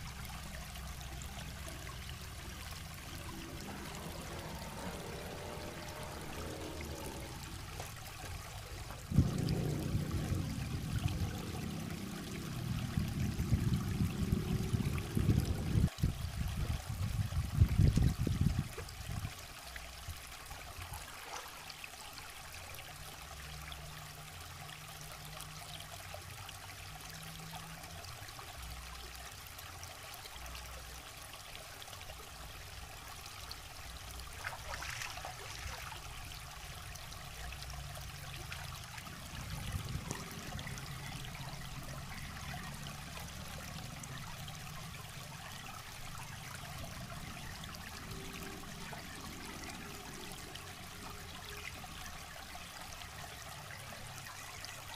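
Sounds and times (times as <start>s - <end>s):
river water trickling over rocks: 0.0s - 54.9s
loud low rumble: 1.2s - 15.9s, 38.1s - 44.4s.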